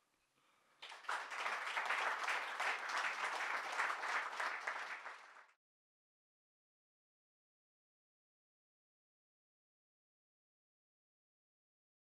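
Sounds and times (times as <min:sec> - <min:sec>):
audience applauding: 0:00.8 - 0:05.6.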